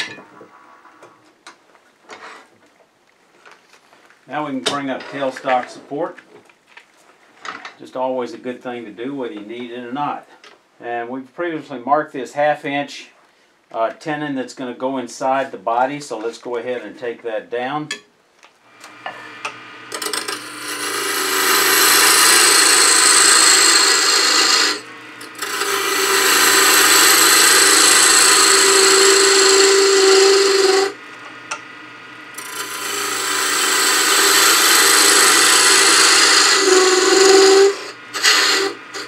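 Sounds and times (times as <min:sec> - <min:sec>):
parting tool cutting wood on lathe: 0:18.8 - 0:39.0.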